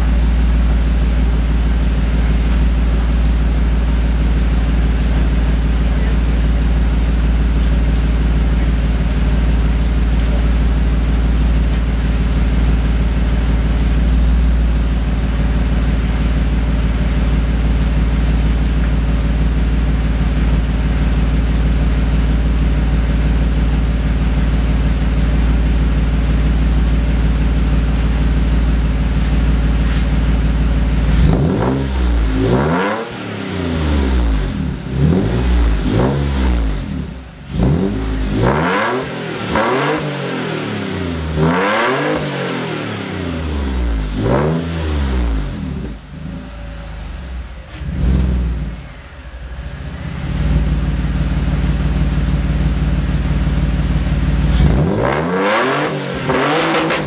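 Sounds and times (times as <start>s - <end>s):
car engine idling: 0.0s - 57.0s
engine revving: 30.9s - 57.0s.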